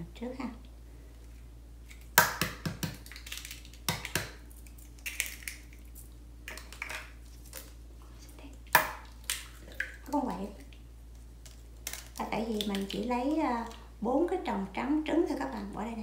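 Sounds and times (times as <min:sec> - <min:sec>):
eggs cracking on bowl: 0:01.8 - 0:07.8, 0:08.6 - 0:13.9.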